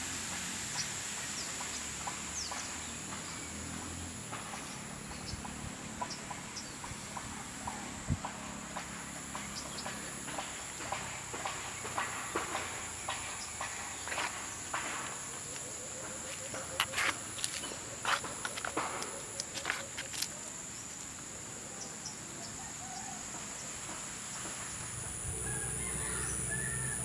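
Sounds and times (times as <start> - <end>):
footsteps on dirt path: 7.7 - 21.2.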